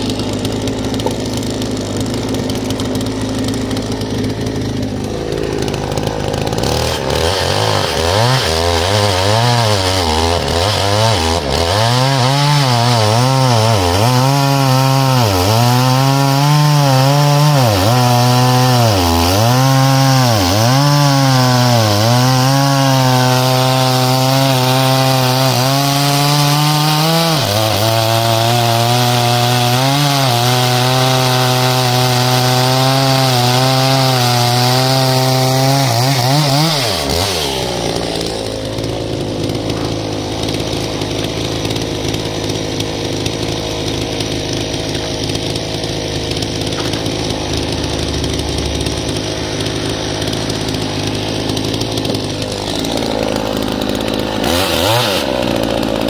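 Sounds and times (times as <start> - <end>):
chainsaw cutting log: 0.0 - 56.0.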